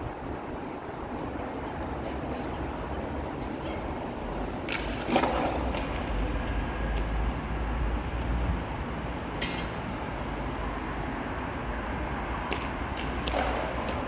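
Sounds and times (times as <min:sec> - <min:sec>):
city ambience rumble and hiss: 0:00.0 - 0:14.0.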